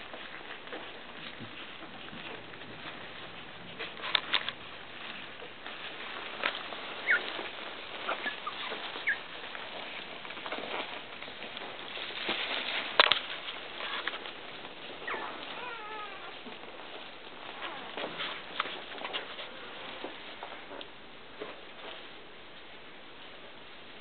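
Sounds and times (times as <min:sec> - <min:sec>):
clicks and shuffling: 0:00.0 - 0:22.7
puppy whimpers: 0:07.0 - 0:07.3, 0:15.0 - 0:16.4
puppies squeaking: 0:07.0 - 0:09.4, 0:15.0 - 0:16.4.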